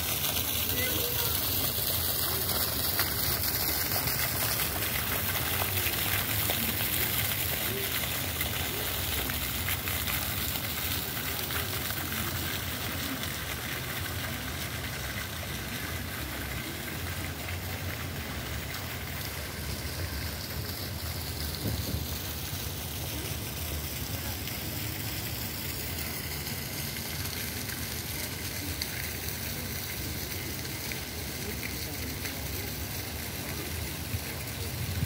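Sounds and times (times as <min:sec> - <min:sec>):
fountain jet splashing into basin: 0:00.0 - 0:35.0.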